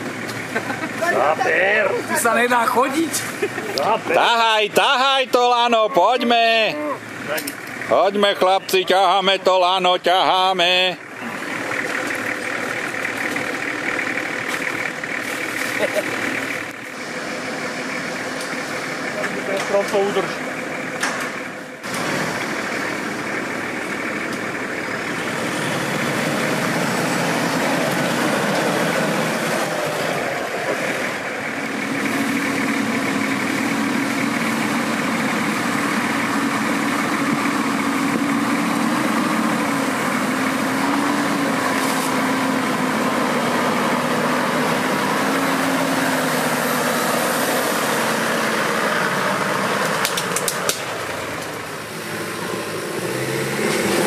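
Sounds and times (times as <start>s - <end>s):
off-road vehicle engine running: 0.0s - 54.0s
sharp clicks: 49.8s - 51.5s.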